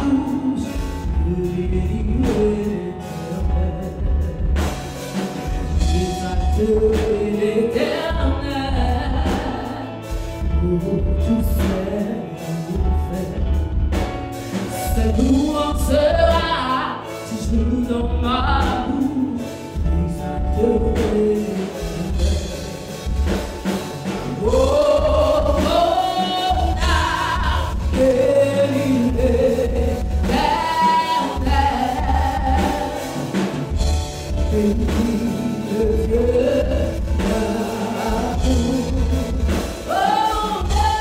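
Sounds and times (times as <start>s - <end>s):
woman singing gospel song: 0.0s - 4.8s, 5.7s - 13.9s, 14.7s - 23.4s, 24.1s - 41.0s
band accompaniment with low beat: 0.0s - 41.0s.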